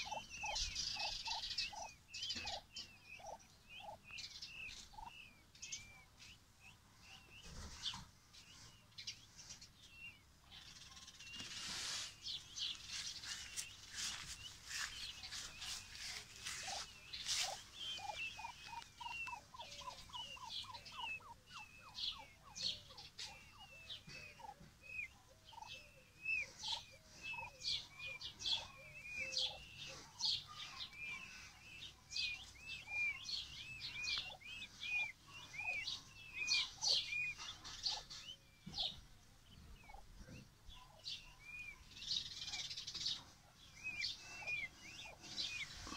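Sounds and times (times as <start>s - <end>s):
chicks peeping: 0.0s - 45.9s
rustling in grass: 11.3s - 20.2s.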